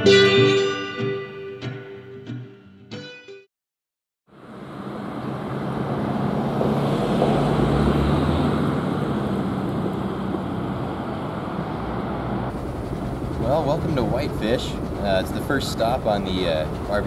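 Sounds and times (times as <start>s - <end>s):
cars driving past: 4.3s - 17.0s.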